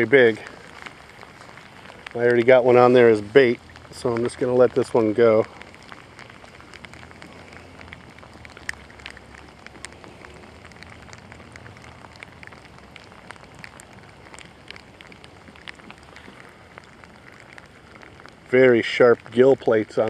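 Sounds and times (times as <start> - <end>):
raindrops ticking close by: 0.0 - 20.0
steady rain: 0.0 - 20.0.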